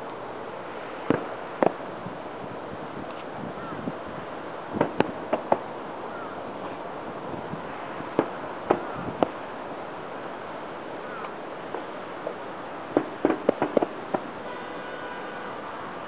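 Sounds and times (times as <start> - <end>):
steady hiss: 0.0 - 16.0
distant firework bangs: 1.0 - 1.9, 4.7 - 5.7, 7.6 - 9.4, 10.9 - 15.0.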